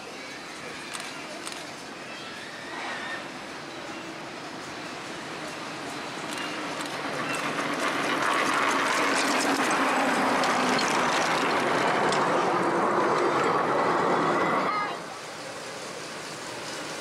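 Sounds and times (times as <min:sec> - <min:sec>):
miniature train clicking on rails: 0:03.4 - 0:14.1, 0:15.2 - 0:17.0.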